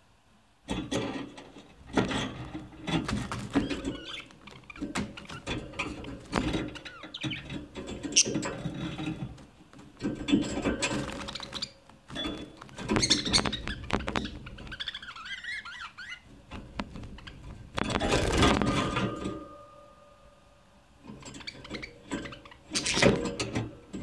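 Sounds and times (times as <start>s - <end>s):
bird warble: 2.9s - 8.8s, 10.6s - 19.0s
budgerigars chattering: 3.5s - 7.5s, 8.1s - 8.4s, 11.0s - 16.2s.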